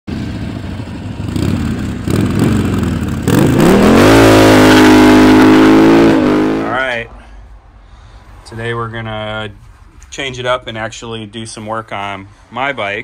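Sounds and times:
engine revving: 0:00.1 - 0:07.1.

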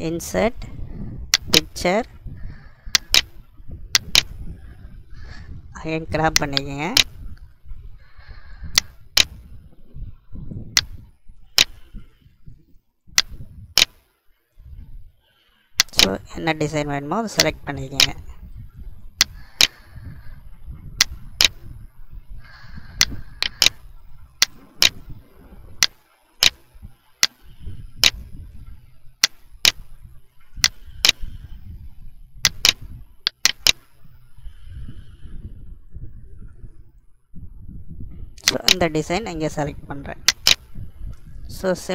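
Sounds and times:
computer mouse clicking: 0:01.3 - 0:01.7, 0:02.9 - 0:03.3, 0:03.9 - 0:04.4, 0:06.3 - 0:07.1, 0:08.2 - 0:09.4, 0:11.6 - 0:11.9, 0:13.2 - 0:14.1, 0:15.8 - 0:16.2, 0:17.4 - 0:18.2, 0:19.2 - 0:20.0, 0:21.0 - 0:21.6, 0:22.5 - 0:23.8, 0:24.4 - 0:25.1, 0:25.8 - 0:26.6, 0:27.2 - 0:28.2, 0:30.6 - 0:31.5, 0:32.4 - 0:34.0, 0:38.4 - 0:38.8, 0:40.2 - 0:40.7.

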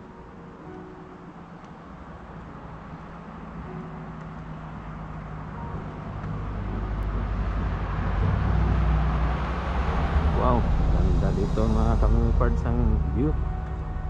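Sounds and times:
car engine approaching: 0:00.0 - 0:14.0
tyre noise on road: 0:01.4 - 0:11.6.

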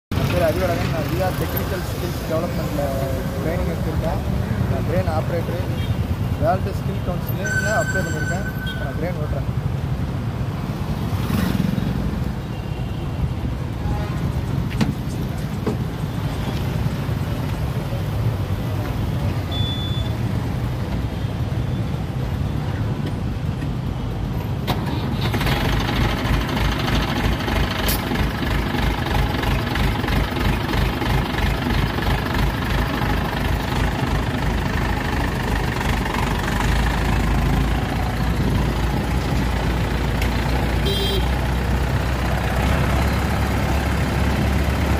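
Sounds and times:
crane diesel engine running: 0:24.8 - 0:44.8.

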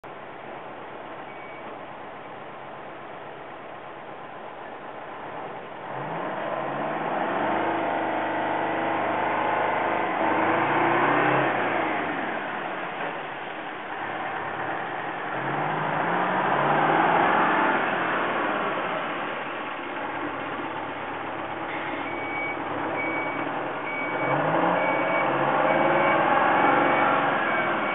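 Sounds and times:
diesel truck accelerating past: 0:05.8 - 0:27.9.

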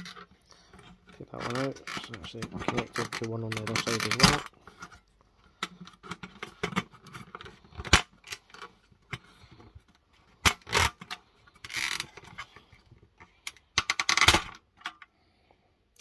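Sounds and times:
plastic and metal clicks: 0:00.0 - 0:09.3, 0:13.2 - 0:15.1.

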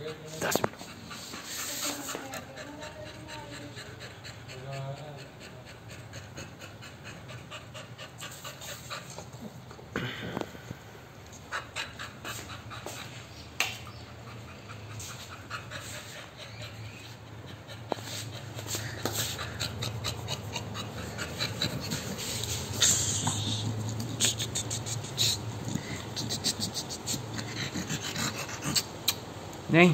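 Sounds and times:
dog panting: 0:00.0 - 0:09.8, 0:11.2 - 0:29.2.

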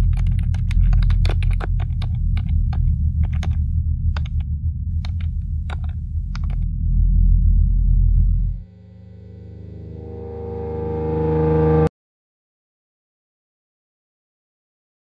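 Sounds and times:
typing on computer keyboard: 0:00.0 - 0:04.4
steady low drone: 0:00.0 - 0:11.9.

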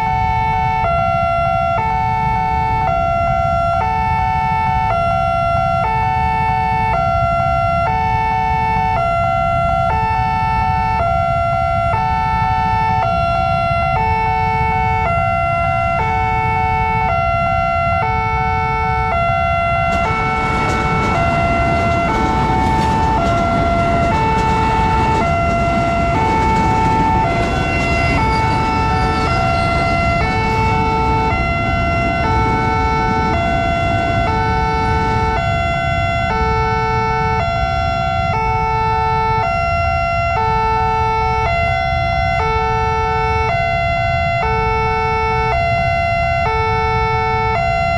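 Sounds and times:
electronic two-tone crossing alarm: 0:00.0 - 0:47.9
electric train passing: 0:12.7 - 0:42.3.

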